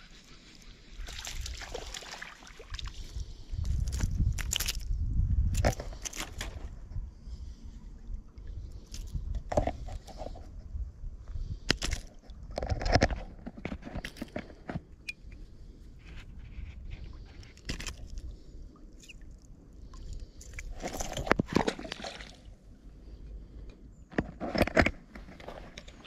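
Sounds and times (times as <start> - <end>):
water sloshing at shore: 0.2 - 4.9
wind rumble on microphone: 2.7 - 14.6, 15.3 - 18.8
handling clicks and rustles: 11.6 - 18.3, 23.7 - 26.0.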